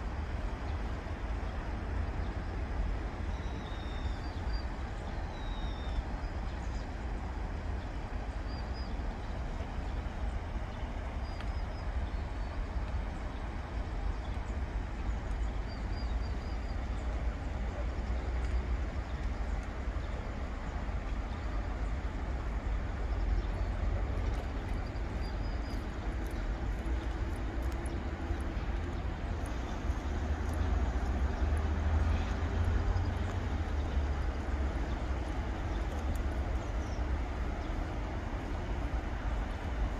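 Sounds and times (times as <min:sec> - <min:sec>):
small birds chirping: 0:23.0 - 0:39.7.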